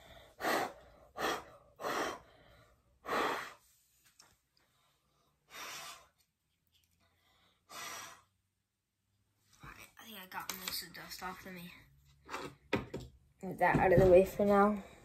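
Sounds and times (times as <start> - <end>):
puffs of breath blowing: 0.0 - 3.8, 5.4 - 6.2, 7.2 - 8.4.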